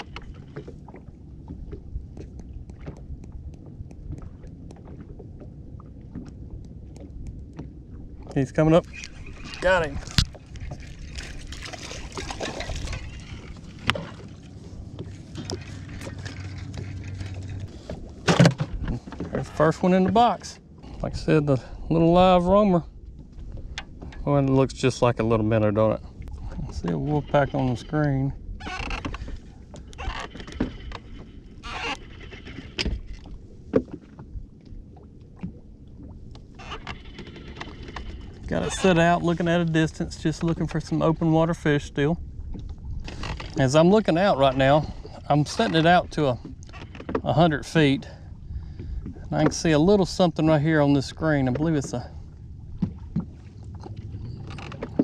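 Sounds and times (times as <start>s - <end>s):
knocks and taps on boat: 0.0s - 9.1s, 16.7s - 20.6s, 32.8s - 34.4s, 45.6s - 47.4s, 48.6s - 49.9s, 52.8s - 55.0s
light water splashing: 0.0s - 27.4s
low steady hum: 0.0s - 55.0s
wind and water rumble: 0.0s - 55.0s.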